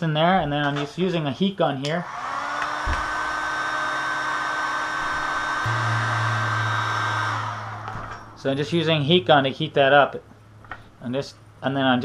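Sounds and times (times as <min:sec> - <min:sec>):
heat gun blowing with fan whine: 0:02.0 - 0:08.5
steady low hum: 0:05.2 - 0:11.6.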